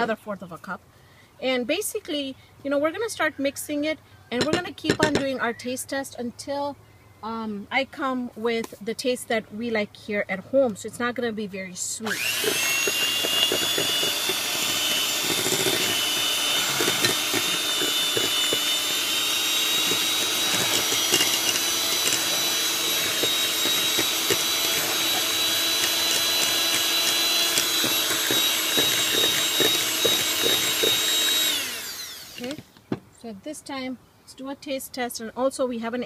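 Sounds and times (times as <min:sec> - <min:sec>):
electric hand mixer whine: 0:12.0 - 0:32.7.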